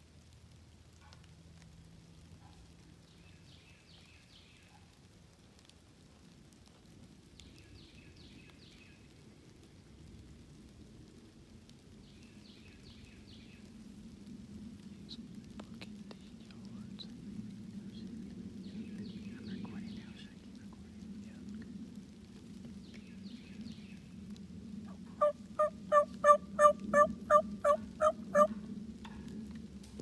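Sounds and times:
low woodland background: 0.0s - 30.0s
turkey yelps: 25.2s - 28.6s.

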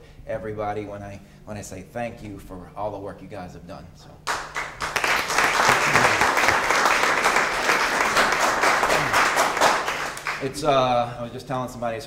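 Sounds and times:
audience applauding: 4.3s - 10.6s.

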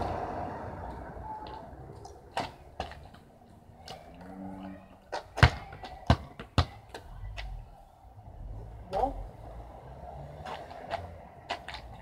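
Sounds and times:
ball thudding on concrete: 5.1s - 7.5s.

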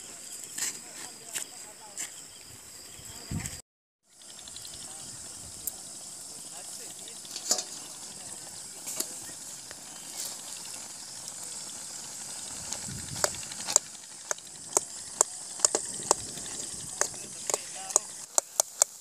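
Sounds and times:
metal lid clanking: 7.3s - 7.8s.

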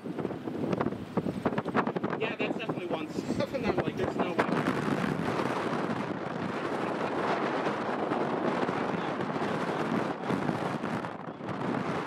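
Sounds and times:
jet engines roaring: 3.6s - 12.0s.

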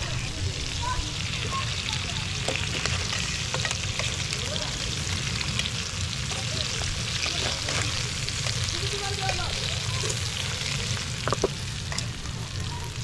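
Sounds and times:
chicken sizzling in hot oil: 0.0s - 13.0s
metal tongs clicking on pan: 2.4s - 4.3s, 11.2s - 12.2s.

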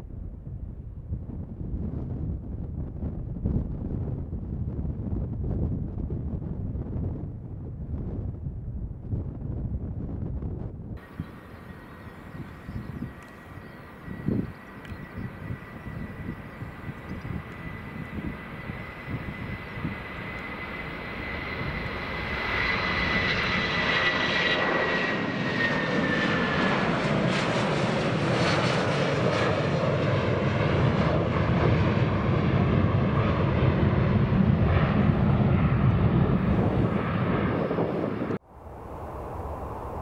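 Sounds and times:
jet engines roaring at takeoff: 0.0s - 40.0s
high jet fan whine: 11.0s - 23.7s.

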